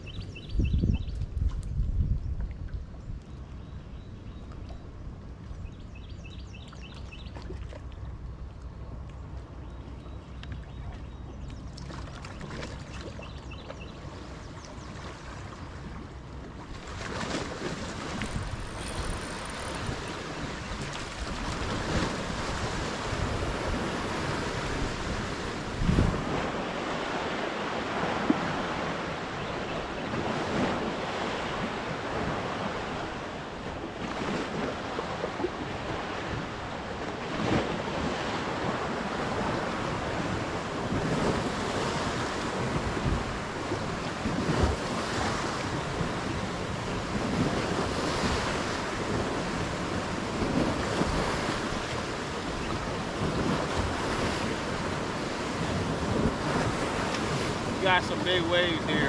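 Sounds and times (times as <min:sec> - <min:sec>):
wind buffeting microphone: 0:00.0 - 0:04.1, 0:16.9 - 0:59.0
waves slapping boat hull: 0:10.4 - 0:59.0.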